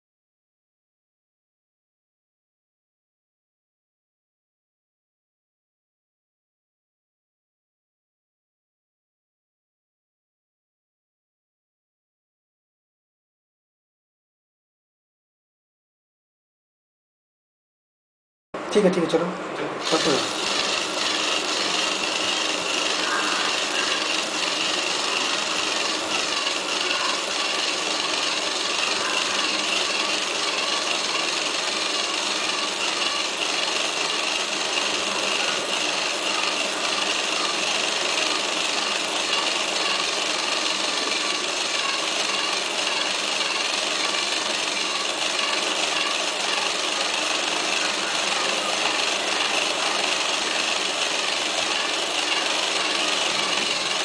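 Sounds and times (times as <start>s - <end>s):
small electric motor whining: 19.8s - 54.0s.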